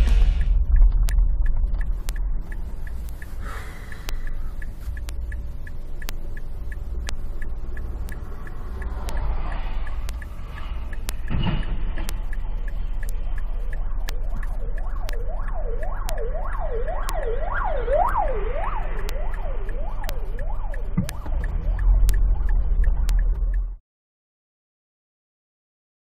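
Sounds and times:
road and engine rumble: 0.0s - 23.8s
siren yelping: 14.3s - 21.8s.

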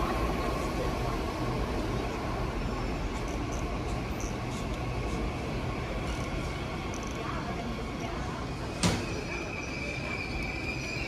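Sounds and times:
rumbling railway station ambience: 0.0s - 11.0s
faint high-pitched squeaks: 8.8s - 11.0s.

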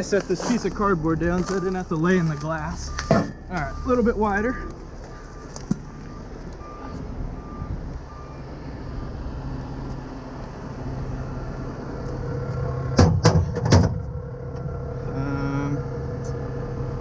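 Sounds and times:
truck engine idling: 0.0s - 17.0s
short electronic beeps: 1.4s - 8.5s
loud metal clanks: 13.0s - 14.1s.

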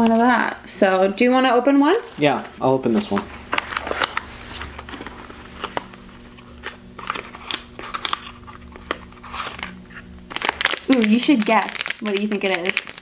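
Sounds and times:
faint steady hum: 0.0s - 13.0s
cardboard packaging crinkling: 3.5s - 13.0s.

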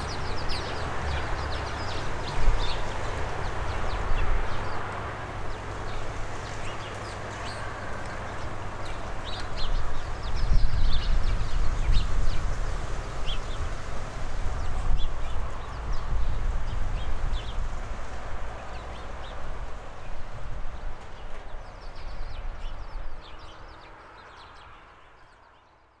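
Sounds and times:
small birds chirping: 0.0s - 13.8s.

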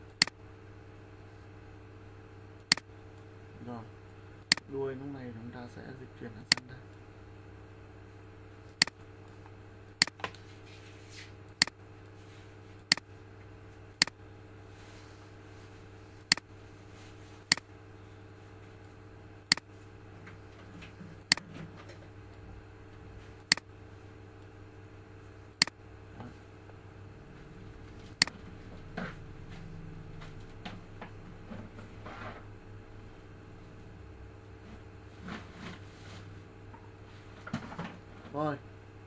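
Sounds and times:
steady low hum: 0.0s - 39.0s
computer mouse clicking: 12.9s - 13.1s, 23.5s - 23.7s.

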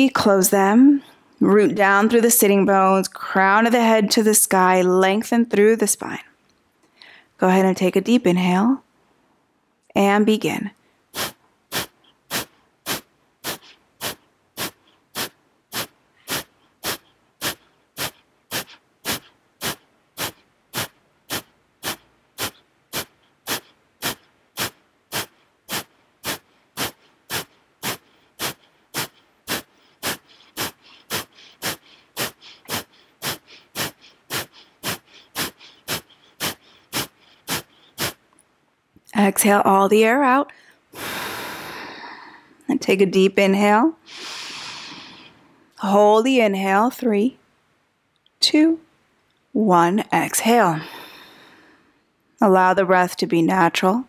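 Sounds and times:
soft inhales: 6.9s - 7.4s, 10.8s - 38.2s, 40.5s - 42.6s, 44.0s - 45.7s, 50.8s - 52.1s
forceful nasal exhales: 11.1s - 38.2s, 40.6s - 42.6s, 44.0s - 45.6s, 50.8s - 51.9s.

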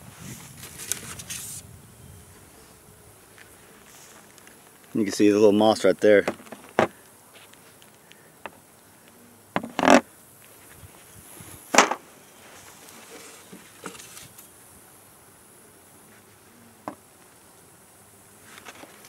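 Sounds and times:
bees buzzing: 0.0s - 19.0s
hive tool scraping wooden frames: 3.6s - 7.8s, 9.5s - 10.1s, 11.6s - 14.5s.

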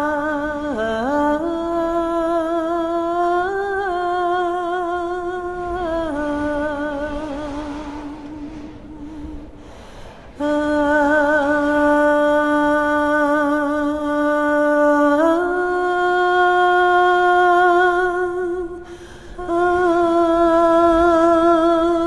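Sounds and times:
woman singing wordless notes: 0.0s - 9.6s, 10.2s - 22.0s
woman taking a breath: 9.2s - 10.4s, 18.8s - 19.4s.

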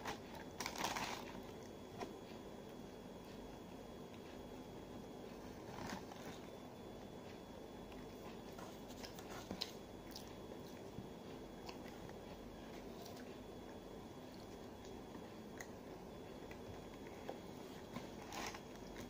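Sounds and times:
chewing and crunching: 0.0s - 2.2s, 7.2s - 19.0s
faint background hum: 0.0s - 19.0s.

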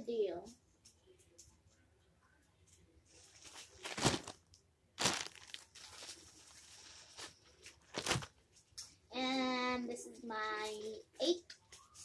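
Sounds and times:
rustling crinkling handling noises: 2.6s - 8.9s.

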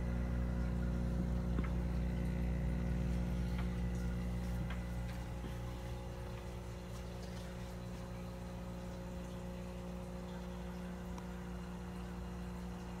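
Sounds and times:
aquarium pump humming: 0.0s - 13.0s.

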